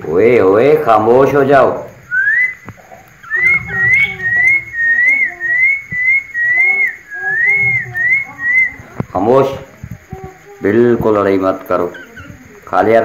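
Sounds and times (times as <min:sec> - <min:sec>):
weak lower bird notes: 0:02.0 - 0:09.1
birds whistling short notes: 0:02.1 - 0:08.9.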